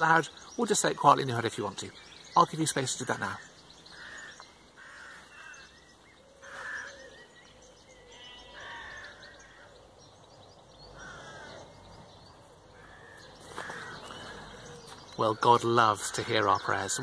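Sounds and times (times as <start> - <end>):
small birds chirping: 0.0 - 17.0
bird cawing: 2.8 - 10.1, 11.0 - 15.2.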